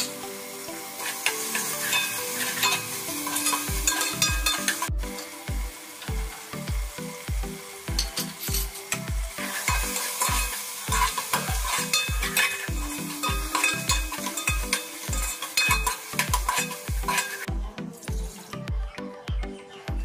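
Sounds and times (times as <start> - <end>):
food sizzling: 0.0 - 18.7
background music with steady beat: 0.0 - 20.0
metal spatula scraping a pot: 1.0 - 4.9, 9.4 - 17.5.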